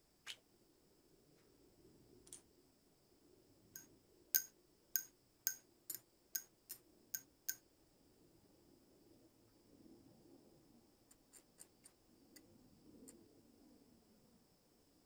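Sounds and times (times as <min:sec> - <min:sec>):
sharp metallic clicks: 0:03.8 - 0:07.6.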